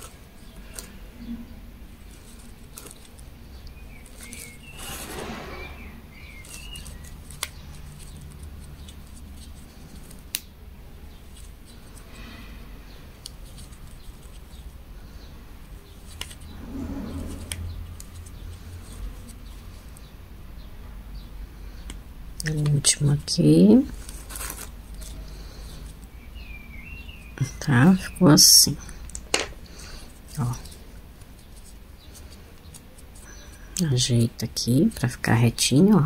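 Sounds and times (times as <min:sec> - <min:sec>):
yarn rustling: 0:00.0 - 0:20.2, 0:22.6 - 0:26.2, 0:29.6 - 0:33.8.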